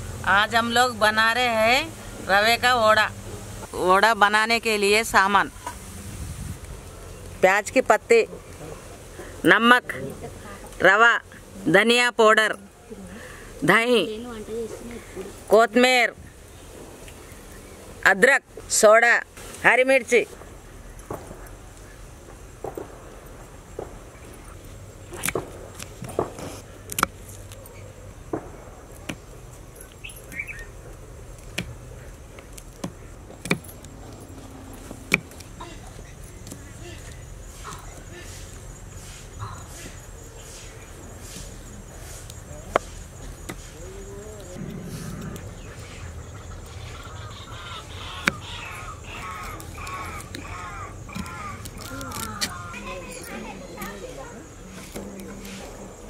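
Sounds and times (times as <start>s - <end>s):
bird calling: 29.8s - 30.8s, 43.5s - 54.4s.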